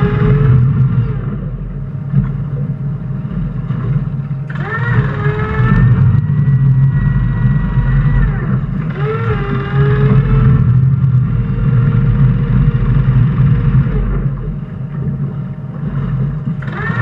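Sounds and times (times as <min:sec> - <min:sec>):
boat engines rumbling: 0:00.0 - 0:17.0.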